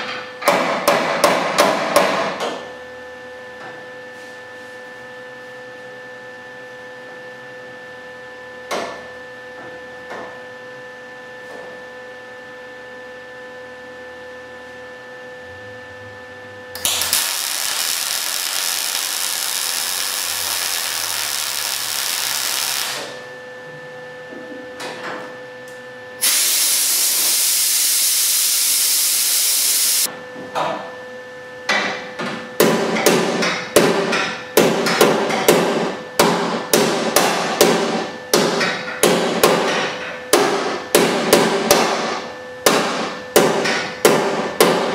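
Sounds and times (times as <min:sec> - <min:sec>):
mig welder crackling hiss: 0:16.8 - 0:23.2, 0:26.2 - 0:30.1.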